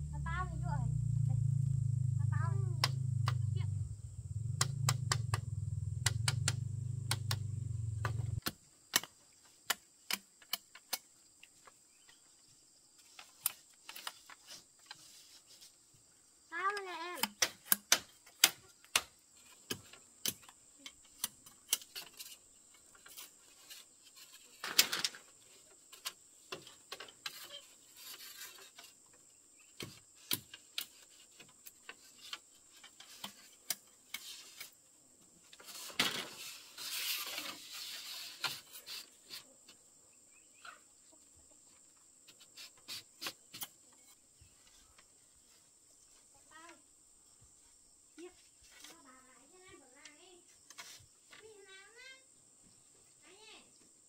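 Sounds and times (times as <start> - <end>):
faint high-pitched tone: 0.0 - 5.8
rustle: 0.0 - 54.0.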